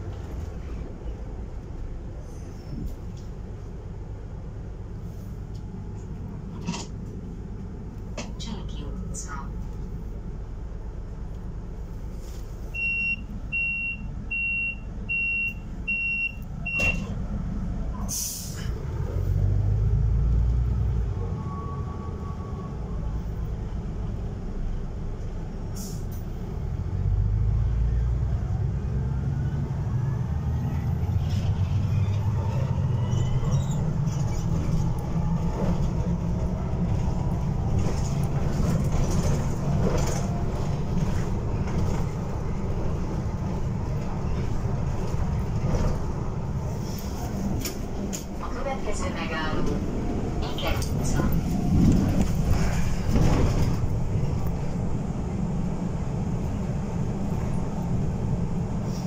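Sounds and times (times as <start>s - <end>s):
bus engine rumbling: 0.0s - 59.0s
rattle and road noise: 0.0s - 59.0s
door warning beeps: 12.8s - 17.1s.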